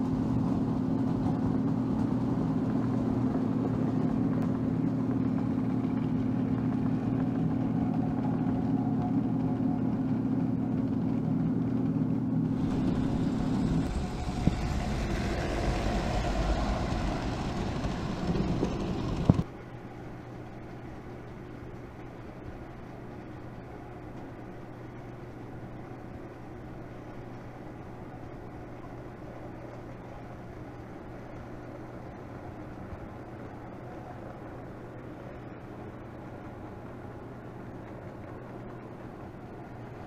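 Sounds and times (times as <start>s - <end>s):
toy train electric hum: 12.5s - 19.4s
toy train wheels rumbling and clattering: 12.6s - 19.5s.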